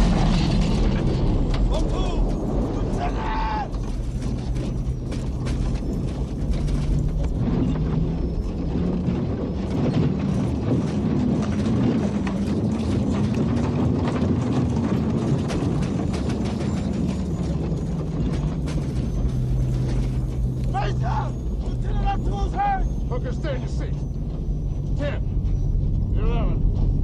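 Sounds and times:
airframe rattling: 0.0 - 27.0.

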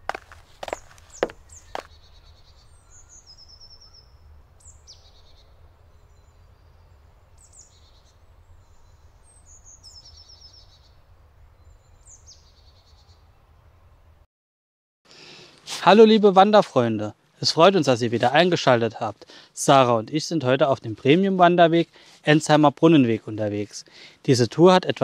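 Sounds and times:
birds chirping and trilling: 0.0 - 14.0.

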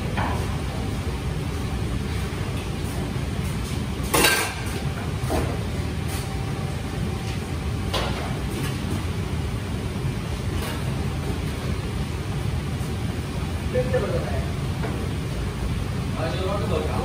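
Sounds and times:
metal pans and utensils clanking: 4.1 - 4.8.

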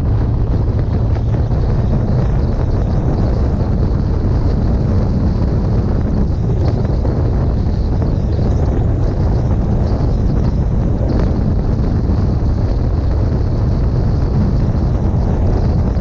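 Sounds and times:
road noise: 0.0 - 16.0
wind buffeting microphone: 0.0 - 16.0.

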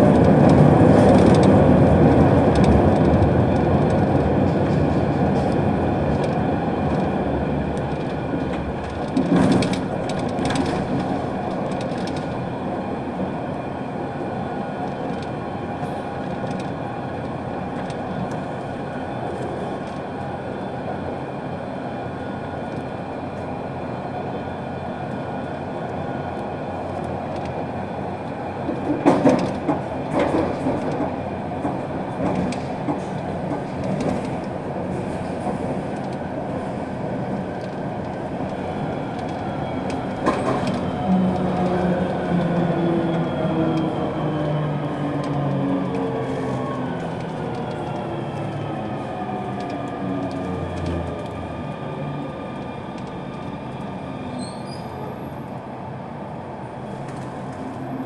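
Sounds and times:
metro train rumbling on track: 0.0 - 58.0
train wheels clattering: 28.7 - 36.2.

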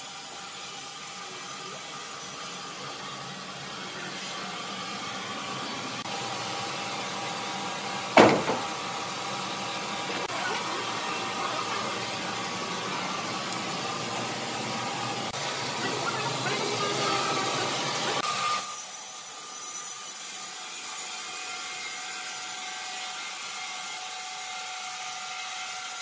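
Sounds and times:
sharp loud knock: 8.2 - 8.8.

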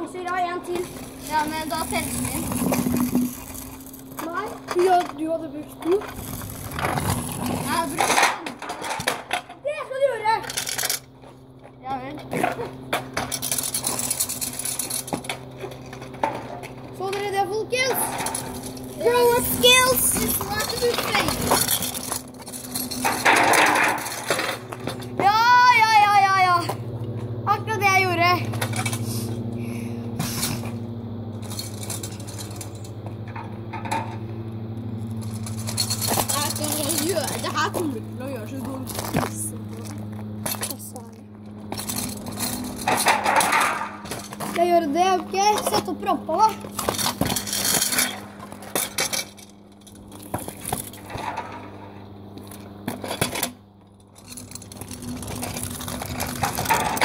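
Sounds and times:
metal scooters clanking: 0.0 - 57.0
steady low hum: 0.0 - 57.0
metallic clicks and clatters: 10.4 - 11.1, 12.4 - 25.2, 31.4 - 34.2, 35.1 - 44.6, 52.4 - 57.0.

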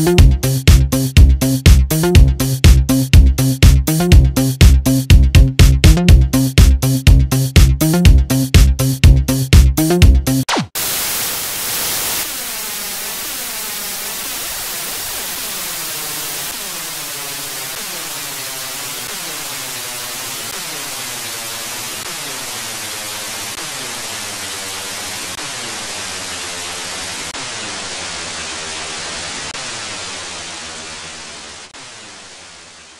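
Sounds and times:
static with whooshing sweep: 10.5 - 32.9.

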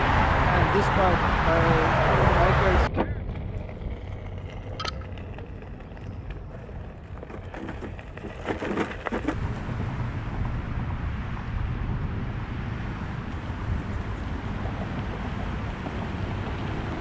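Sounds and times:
board wheel rolling on path: 1.9 - 17.0
short clicks and crackles: 4.7 - 6.4.

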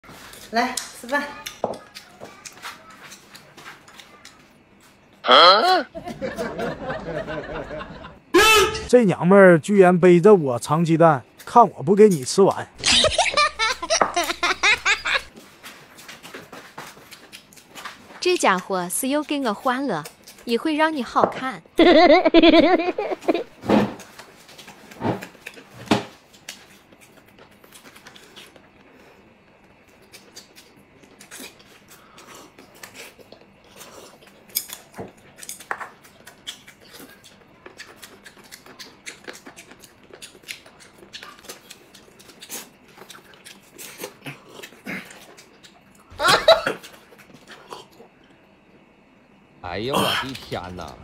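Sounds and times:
slurping and chewing: 15.2 - 18.1, 24.0 - 48.4.

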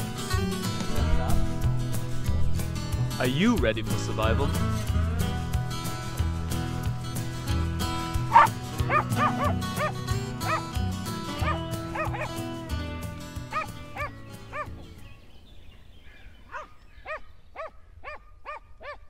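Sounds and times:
background music: 0.0 - 15.3
small dog yapping: 8.3 - 9.9, 11.4 - 12.4, 13.5 - 14.7, 16.5 - 19.0.

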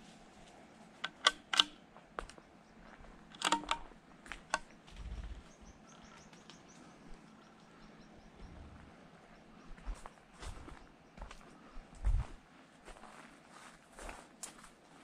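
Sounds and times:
rifle mechanism clicks: 1.0 - 1.8, 3.3 - 4.8.

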